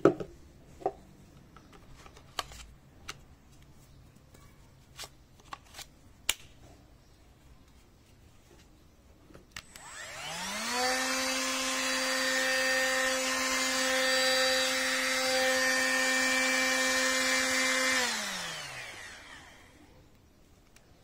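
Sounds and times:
angle grinder whining: 0:09.6 - 0:19.9.

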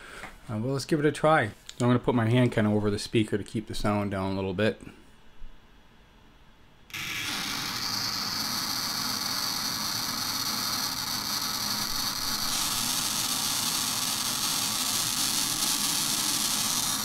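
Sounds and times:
square-wave tones from small speaker: 0:06.9 - 0:17.0.

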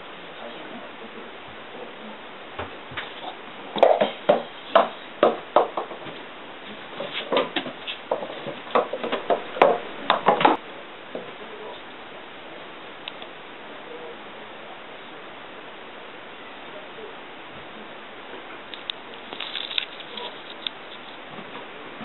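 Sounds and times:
ball bouncing down wooden stairs: 0:03.7 - 0:10.6.

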